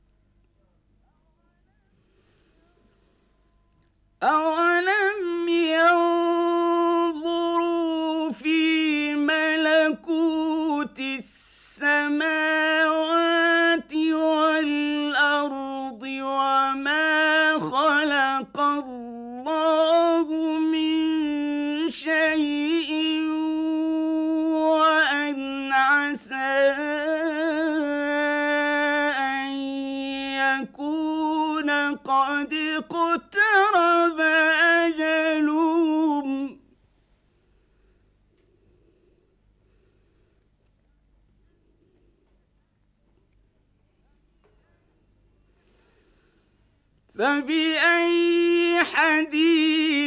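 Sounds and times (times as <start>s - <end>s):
quick breath: 1.9s - 3.5s, 37.1s - 40.6s, 45.4s - 46.8s
man chanting recitation: 4.2s - 36.6s, 47.2s - 50.0s.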